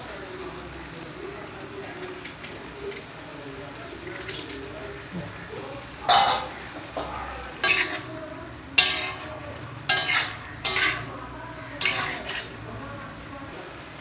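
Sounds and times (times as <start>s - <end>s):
metal spatula scraping a pan: 7.6s - 8.2s, 8.8s - 12.7s
spatula clanking with metallic ring: 8.8s - 11.1s, 11.8s - 12.6s.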